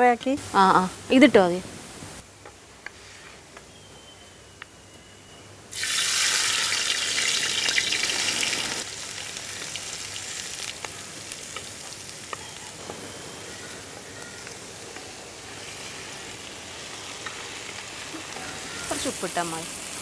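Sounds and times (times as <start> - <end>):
onions sizzling in hot pan: 5.7 - 20.0.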